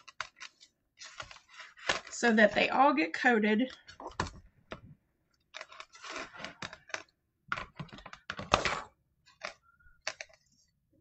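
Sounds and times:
spatula scraping plastic bowl: 5.6 - 7.1.

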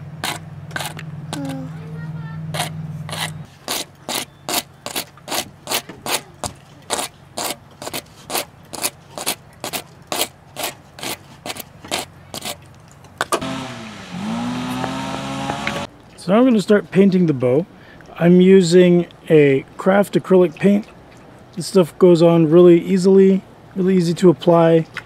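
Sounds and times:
rasp scraping plastic pipe: 2.5 - 12.6.

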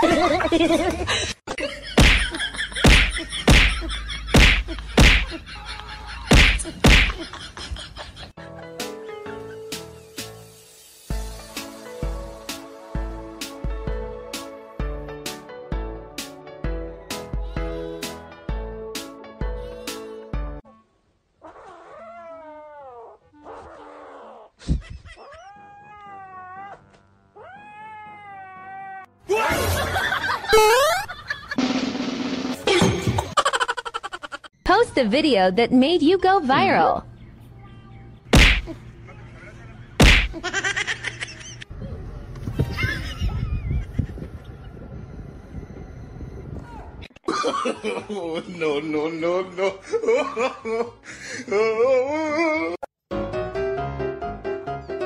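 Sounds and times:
sharp knock: 2.0 - 3.8, 4.4 - 5.3, 6.3 - 7.2, 38.4 - 38.7, 40.0 - 40.4
kitten yowling: 27.4 - 29.1.

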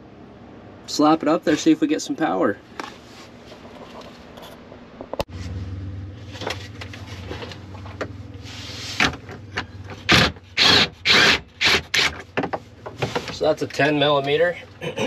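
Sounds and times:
steady low hum: 0.0 - 15.0
knocks and scrapes of plastic panel: 12.2 - 13.4.

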